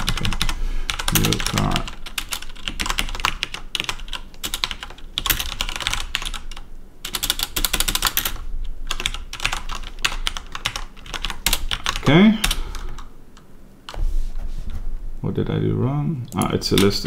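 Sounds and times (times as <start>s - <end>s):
fast typing on keyboard: 0.0s - 13.1s.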